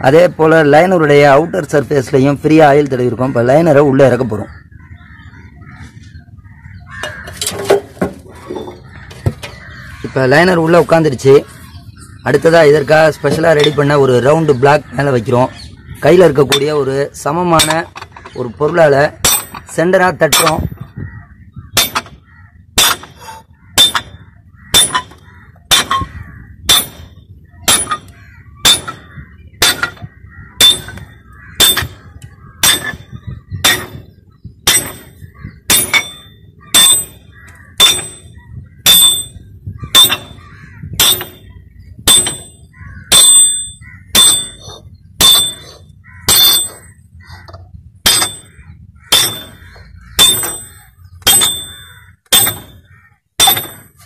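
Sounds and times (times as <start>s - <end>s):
metal bar striking steel block: 19.2s - 19.7s, 20.3s - 20.7s, 21.8s - 22.2s, 22.8s - 26.1s, 26.7s - 27.1s, 27.7s - 32.0s, 32.6s - 34.0s, 34.7s - 40.4s, 41.0s - 41.5s, 42.1s - 46.9s, 48.1s - 49.6s, 50.2s - 54.0s.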